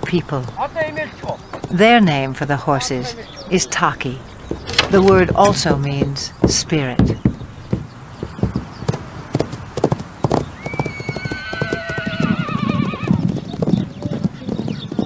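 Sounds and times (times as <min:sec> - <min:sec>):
horse hoofbeats: 0:00.0 - 0:15.0
horse whinnying: 0:10.6 - 0:13.2.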